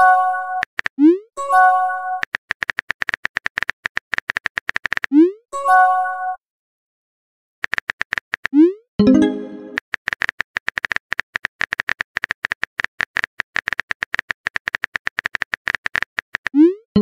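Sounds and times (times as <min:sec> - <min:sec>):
phone keyboard clicks: 0:07.6 - 0:08.6, 0:09.7 - 0:16.6
pitched notification tone: 0:09.0 - 0:09.8.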